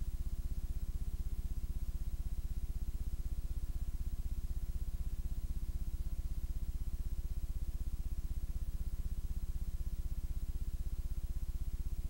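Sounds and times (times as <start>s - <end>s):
low pulsing electrical hum: 0.0s - 12.0s.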